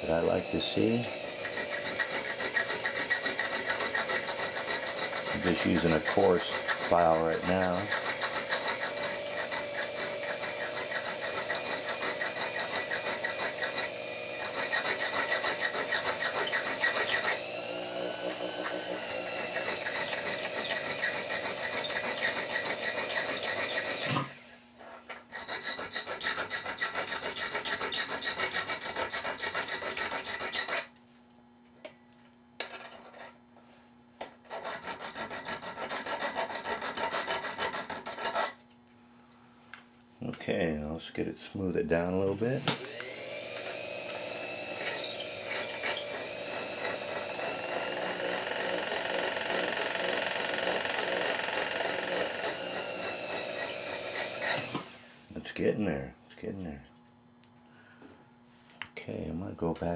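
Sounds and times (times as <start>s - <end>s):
lathe humming: 0.0s - 24.4s, 42.8s - 55.2s
file scraping on metal: 0.0s - 31.0s, 34.4s - 38.6s, 44.6s - 49.6s, 51.8s - 54.8s.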